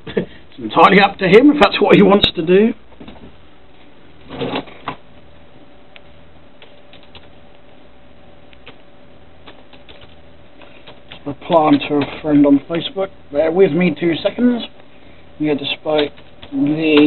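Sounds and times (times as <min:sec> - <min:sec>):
faint steady hum: 0:00.0 - 0:17.0
keyboard keys typing: 0:06.6 - 0:07.3, 0:09.4 - 0:10.2, 0:15.9 - 0:17.0.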